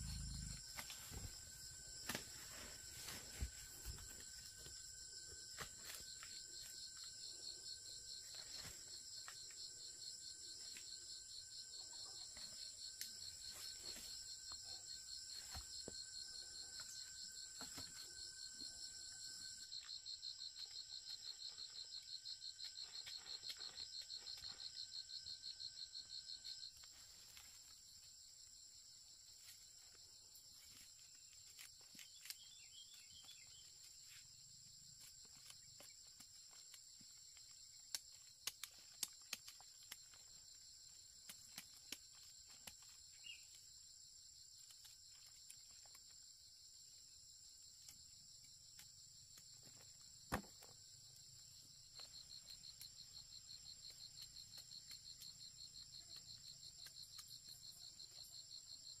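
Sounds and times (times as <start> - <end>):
fast pulsing insect trill: 0.0 - 27.6
insects calling: 0.0 - 46.2, 47.7 - 59.0.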